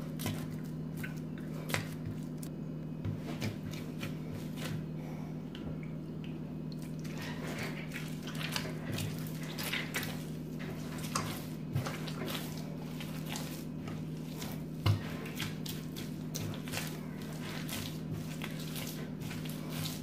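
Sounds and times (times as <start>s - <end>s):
dough squishing and slapping: 0.0s - 20.0s.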